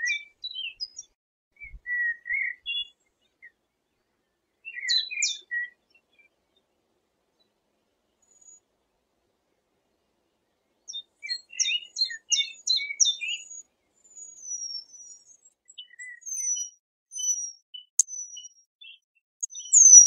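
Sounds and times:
thin falling bird whistles: 0:00.0 - 0:02.9, 0:04.7 - 0:05.8, 0:11.2 - 0:20.0
short bird chirps: 0:00.0 - 0:03.6, 0:04.7 - 0:05.8, 0:10.9 - 0:20.0.

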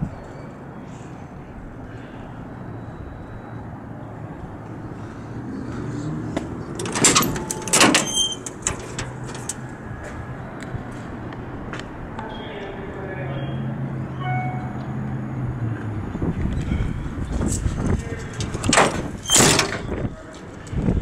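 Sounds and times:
metal door clanking open: 0:06.7 - 0:09.6, 0:18.4 - 0:20.0.

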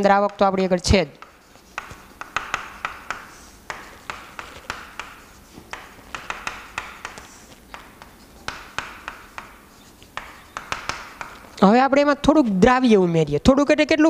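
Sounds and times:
chalk tapping and scratching on board: 0:00.0 - 0:12.1.

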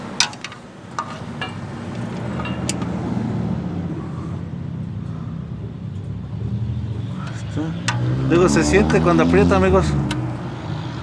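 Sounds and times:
motor vehicle rumble: 0:00.0 - 0:11.0
ratchet clicking: 0:00.2 - 0:02.9.

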